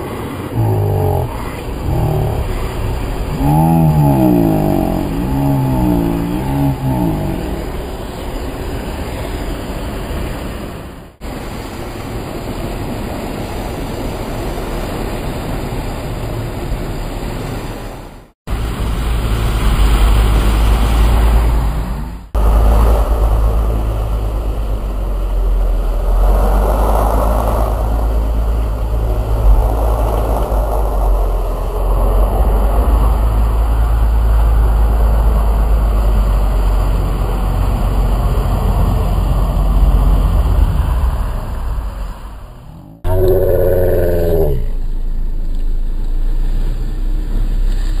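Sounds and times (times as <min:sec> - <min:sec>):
heavy low rumble: 0:00.0 - 0:09.5, 0:18.5 - 0:47.4
off-road vehicle engine: 0:00.0 - 0:11.4, 0:18.5 - 0:48.0.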